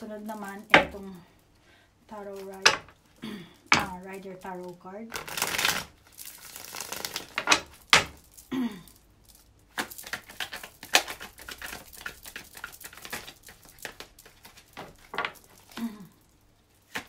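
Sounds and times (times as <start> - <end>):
cards being shuffled: 3.8 - 8.5, 9.3 - 16.0, 16.8 - 17.0.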